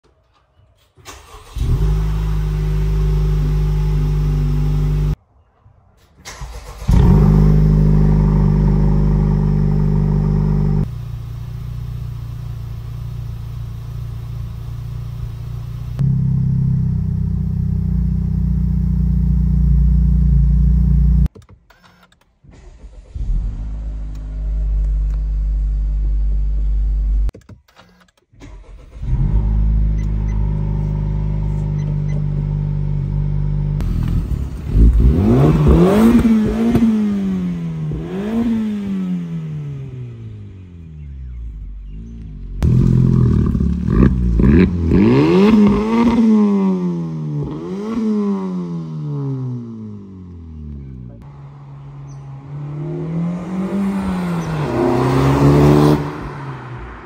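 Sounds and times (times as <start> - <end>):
car engine revving: 1.1 - 5.2, 6.3 - 21.3, 28.4 - 57.0
car engine idling: 6.6 - 21.3.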